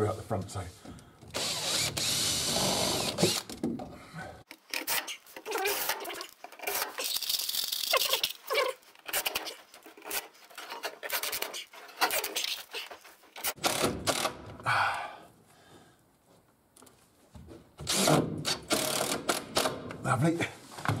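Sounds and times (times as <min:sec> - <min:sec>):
cordless driver driving screws: 0:01.3 - 0:03.6.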